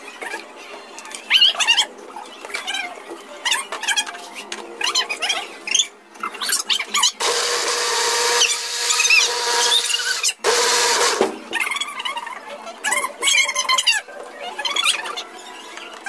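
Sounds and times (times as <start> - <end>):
electric blender whining: 7.2 - 11.3
excited high-pitched voices: 11.5 - 16.0.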